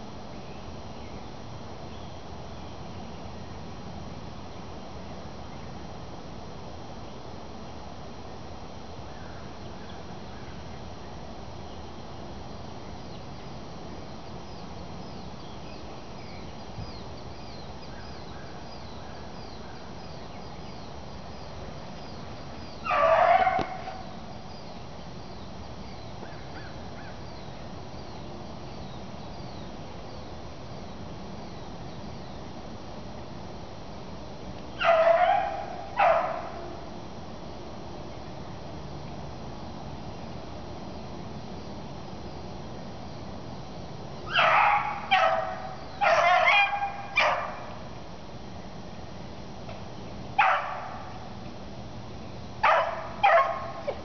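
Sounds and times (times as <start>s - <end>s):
background hiss: 0.0s - 54.0s
hound baying: 22.8s - 24.0s, 34.8s - 36.8s, 44.3s - 47.7s, 52.6s - 54.0s.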